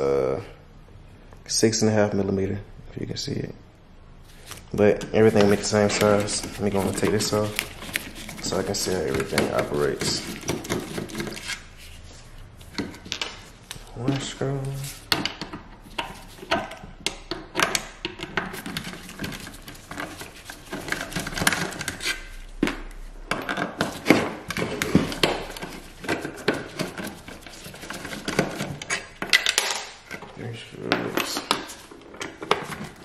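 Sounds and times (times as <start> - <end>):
metal parts clicking and clattering: 23.3 - 33.0.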